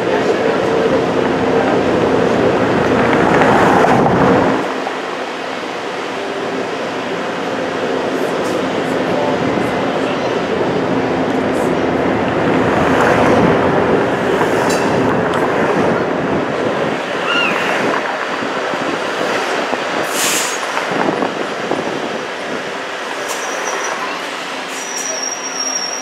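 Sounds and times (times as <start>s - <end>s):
streetcar motors humming: 0.0s - 26.0s
streetcar wheels rumbling on rails: 0.0s - 26.0s
wheel squeal: 23.3s - 26.0s.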